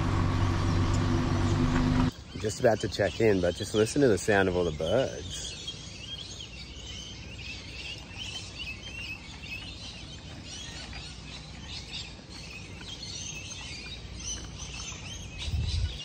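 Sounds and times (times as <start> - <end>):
low background rumble: 0.0 - 2.1
birds chirping and whistling: 0.0 - 16.0.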